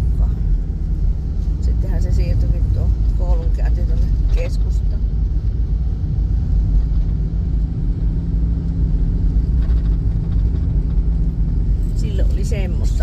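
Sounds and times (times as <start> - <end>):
car engine and tyre rumble: 0.0 - 13.0.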